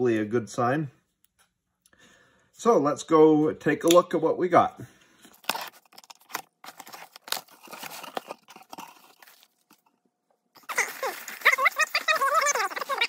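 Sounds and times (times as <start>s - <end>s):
packing peanuts rustling and crunching: 5.3s - 9.9s, 10.6s - 13.0s.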